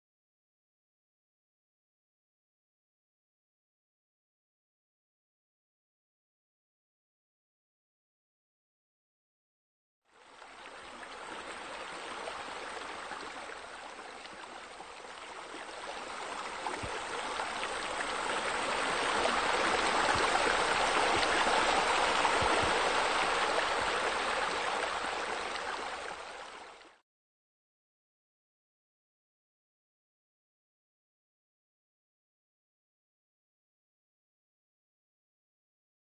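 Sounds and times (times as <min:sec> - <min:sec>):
water running and splashing: 0:10.4 - 0:26.8.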